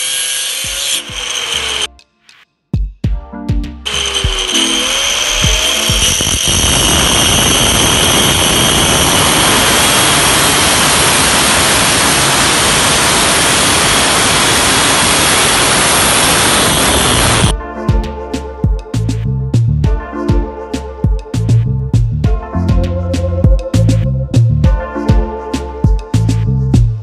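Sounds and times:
angle grinder cutting steel: 0.0s - 1.9s, 3.9s - 17.5s.

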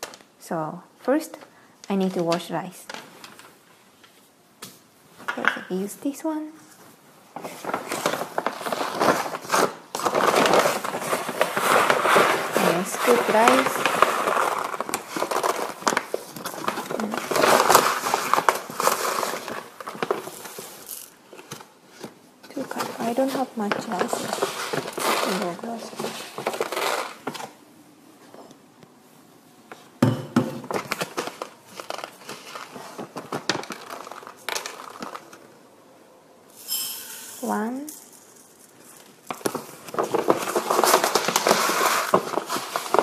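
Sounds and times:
paper bag crinkling: 7.4s - 27.6s, 30.7s - 35.6s, 37.4s - 43.0s
hand scooping rice: 8.4s - 15.7s, 23.1s - 27.2s.

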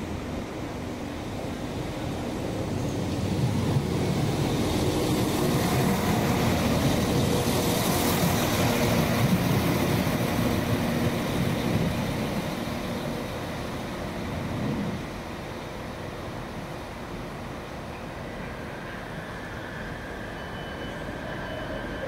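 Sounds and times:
train rushing past: 0.0s - 22.0s.

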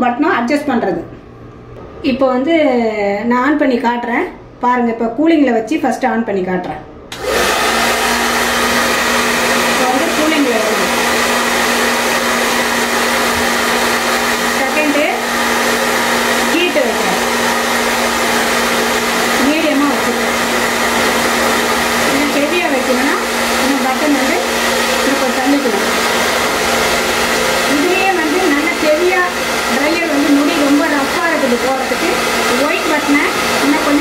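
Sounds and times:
hair dryer running: 7.1s - 34.0s.

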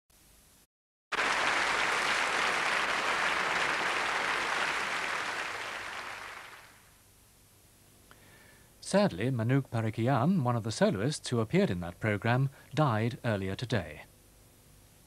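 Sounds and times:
audience applauding: 1.1s - 6.9s.

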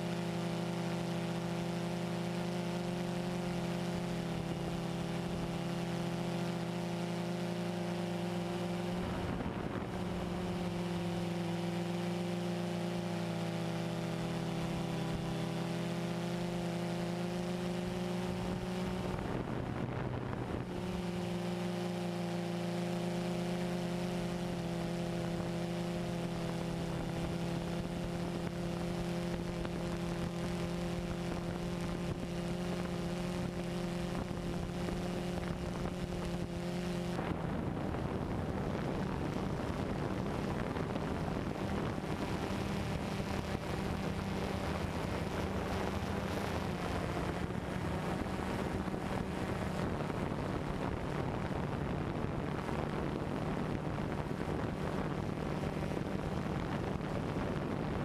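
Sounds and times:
drone propellers humming: 0.0s - 58.0s
wind noise on microphone: 18.3s - 21.1s, 26.8s - 58.0s.

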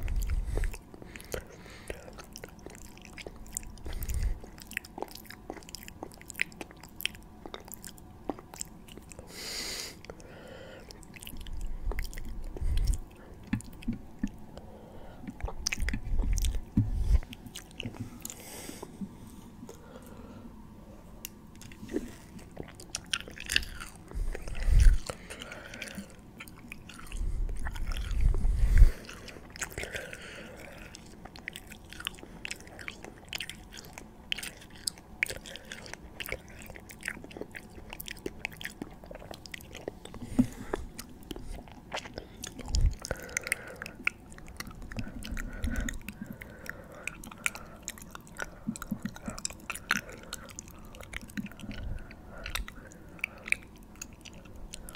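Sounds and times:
wet mouth clicks and smacks: 47.1s - 51.8s.

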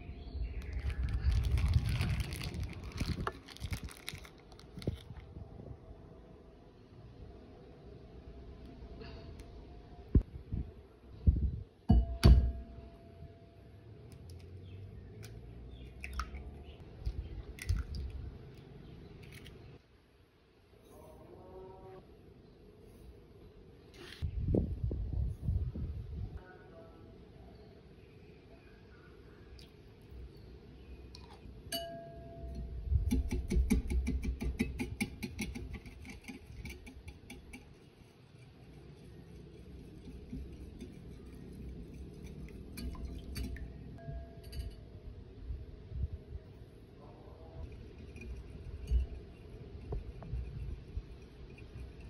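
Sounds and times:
glassy clink: 31.7s - 32.7s, 42.8s - 44.9s.

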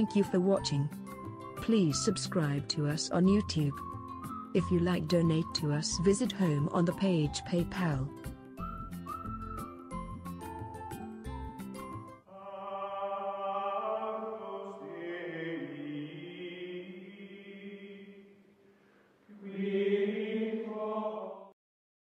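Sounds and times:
chant-like held vocal notes: 12.3s - 18.3s, 19.3s - 21.6s.

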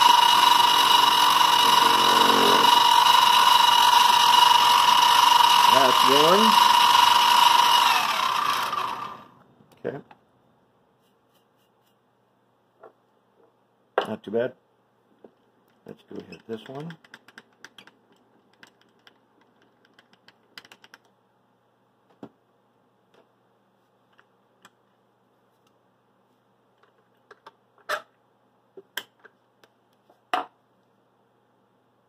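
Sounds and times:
milling machine motor hum: 0.0s - 9.3s.

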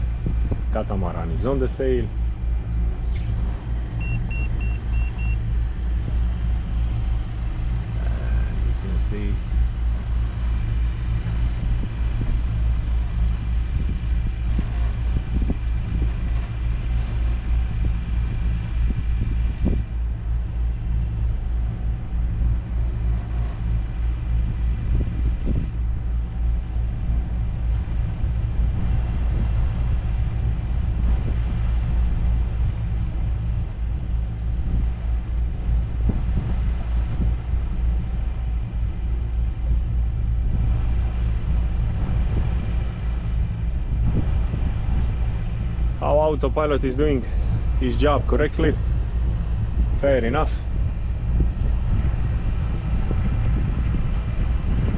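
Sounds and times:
boat diesel engines rumbling: 0.0s - 54.9s.

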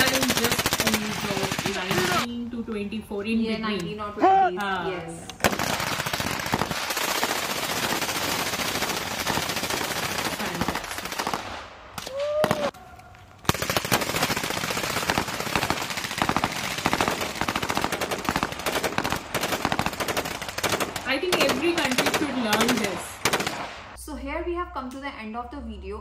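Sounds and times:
rapid rifle gunfire: 0.0s - 2.3s, 5.4s - 11.7s, 13.5s - 24.0s.

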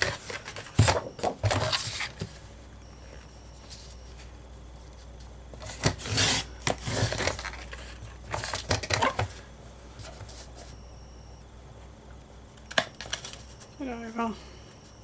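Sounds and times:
paper scraping on trimmer: 5.9s - 7.3s.

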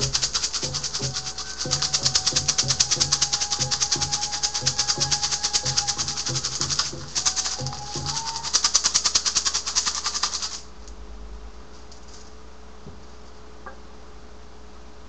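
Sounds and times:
hand rattle shaken: 0.0s - 10.7s
faint electrical hum: 0.0s - 15.0s.

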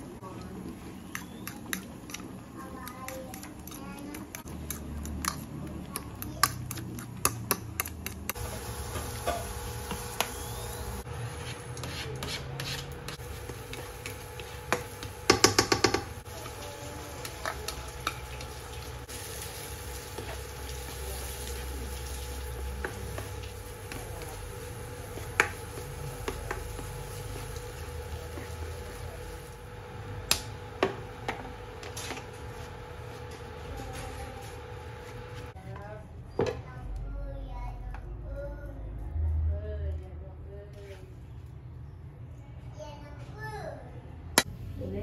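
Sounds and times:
spatula scraping rice in wok: 11.1s - 15.1s.

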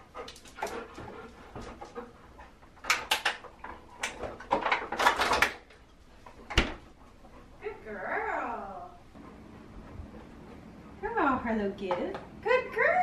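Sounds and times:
clatters and rustles: 0.0s - 7.6s.

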